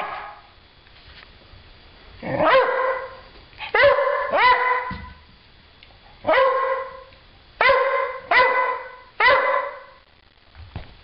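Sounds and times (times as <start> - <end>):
dog barking: 0.0 - 0.5, 2.3 - 5.2, 6.2 - 10.0.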